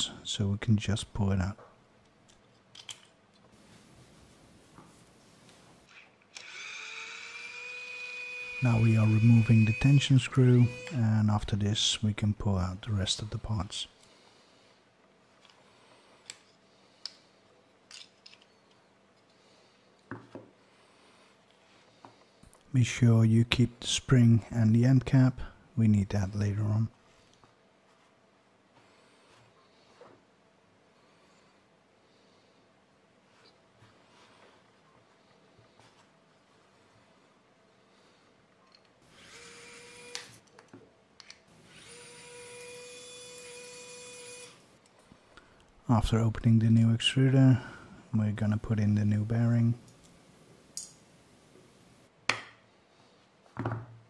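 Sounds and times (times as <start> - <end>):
electric screwdriver whining: 6.4 - 11.0, 39.1 - 40.4, 41.6 - 44.6.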